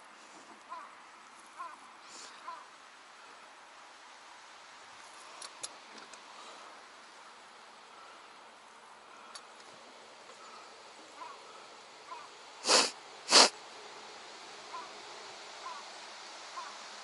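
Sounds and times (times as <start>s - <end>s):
person sniffing: 2.0s - 2.4s, 12.6s - 13.6s.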